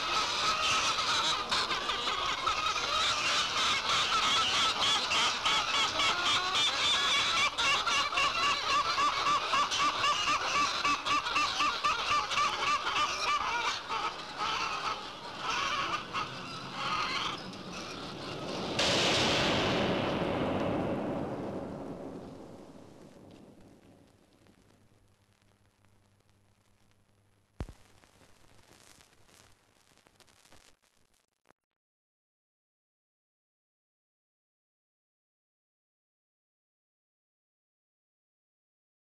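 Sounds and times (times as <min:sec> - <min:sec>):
flock of chickens clucking: 0:00.0 - 0:18.7
loud rushing noise: 0:15.3 - 0:24.1.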